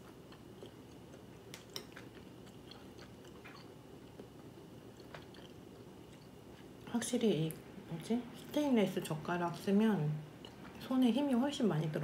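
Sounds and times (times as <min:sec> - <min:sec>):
soft chewing: 0:00.0 - 0:08.7, 0:10.3 - 0:10.9.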